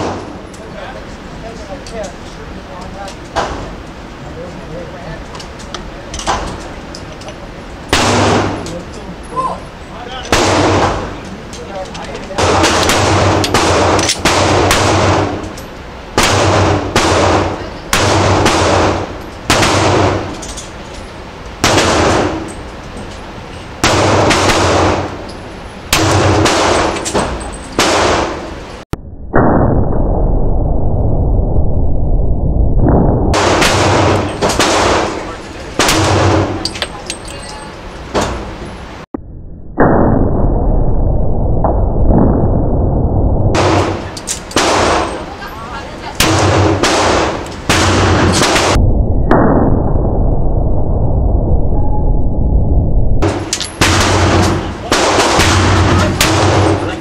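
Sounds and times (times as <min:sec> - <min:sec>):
pistol shots with ringing echo: 0:07.9 - 0:08.8, 0:10.2 - 0:11.2, 0:12.4 - 0:15.6, 0:16.2 - 0:20.4, 0:21.6 - 0:22.6, 0:23.8 - 0:25.2, 0:25.9 - 0:28.6, 0:33.4 - 0:37.4, 0:43.6 - 0:45.5, 0:46.2 - 0:48.8, 0:53.2 - 0:57.0.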